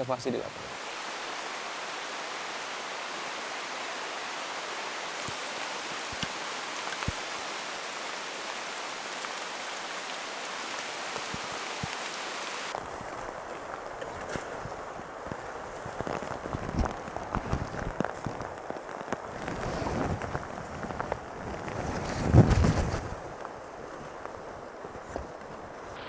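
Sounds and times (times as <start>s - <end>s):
rain hissing through forest: 0.0s - 26.0s
raindrops tapping: 1.8s - 23.6s.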